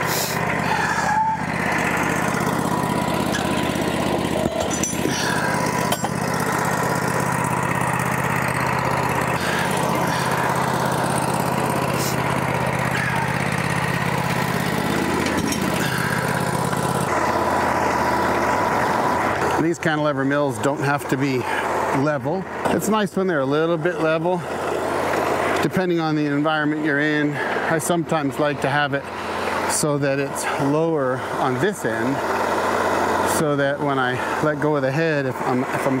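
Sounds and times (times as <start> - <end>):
sawmill engine running: 0.0 - 36.0
thin steady whine: 0.0 - 36.0.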